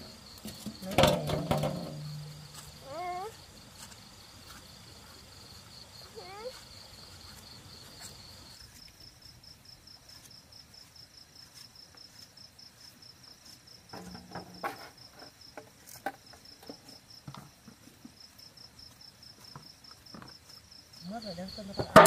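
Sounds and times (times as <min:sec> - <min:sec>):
night insects chirping: 0:00.0 - 0:22.0
knife knocking and scraping gourd: 0:00.4 - 0:03.0, 0:11.4 - 0:17.0.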